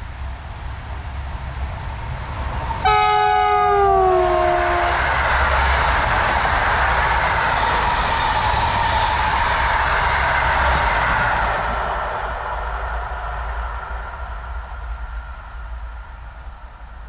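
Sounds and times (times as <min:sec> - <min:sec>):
train coaches passing on rails: 0:00.0 - 0:17.0
locomotive horn: 0:02.8 - 0:05.1.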